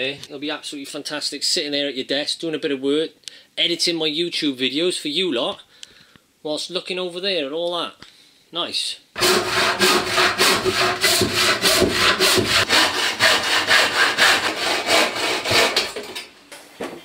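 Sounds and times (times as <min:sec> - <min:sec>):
hand saw cutting wood: 0:09.2 - 0:16.2.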